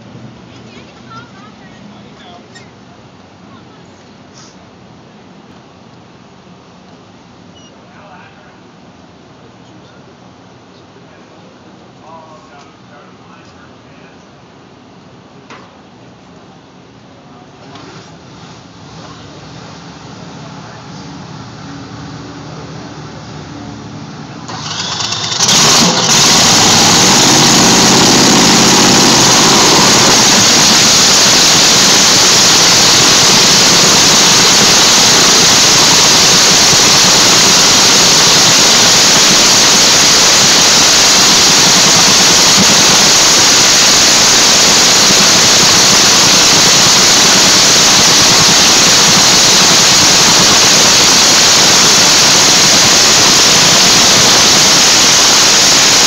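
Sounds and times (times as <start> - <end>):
dragster engine roaring: 17.7 - 56.0.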